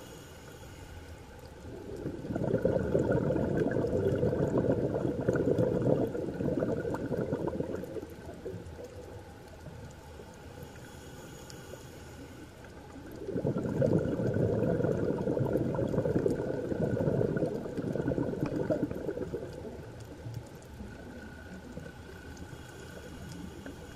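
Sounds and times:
quiet breaths: 0:00.0 - 0:23.9
air bubbling underwater: 0:01.7 - 0:08.6, 0:13.2 - 0:19.9.

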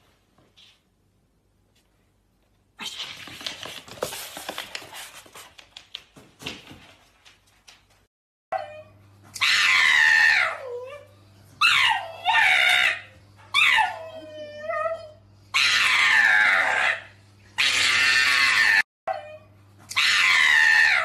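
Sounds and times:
dog crying: 0:08.5 - 0:21.0.

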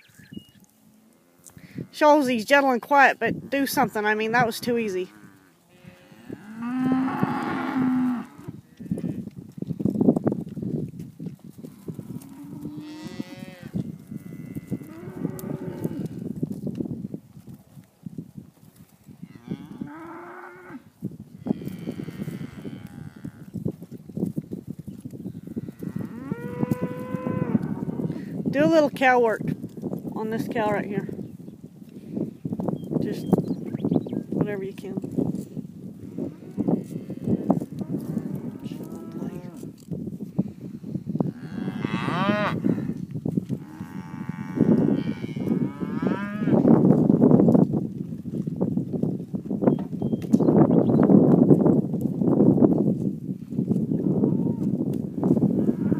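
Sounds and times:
hooves scuffing dry ground: 0:00.0 - 0:06.6, 0:07.2 - 0:55.9
cattle mooing: 0:05.0 - 0:09.2, 0:36.2 - 0:39.7.

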